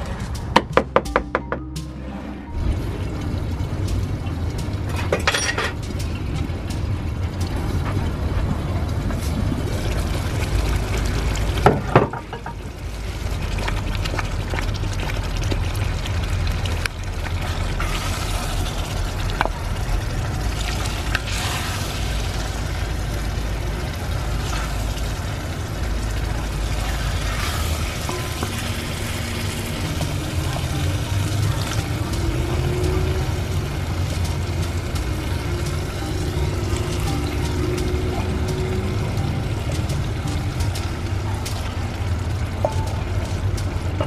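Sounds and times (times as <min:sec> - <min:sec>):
low rumble of fire: 0:00.0 - 0:01.0, 0:02.0 - 0:44.0.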